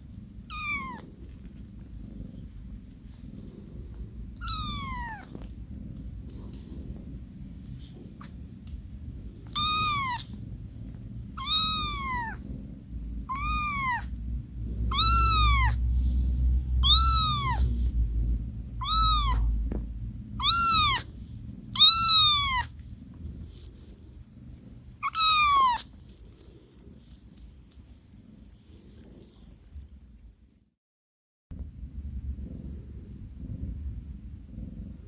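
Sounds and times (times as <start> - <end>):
kitten mewing: 0.4 - 1.0, 4.4 - 5.4, 9.5 - 10.3, 11.4 - 12.4, 13.3 - 14.2, 14.9 - 15.8, 16.8 - 17.8, 18.8 - 19.6, 20.4 - 21.1, 21.7 - 22.8, 25.0 - 26.0.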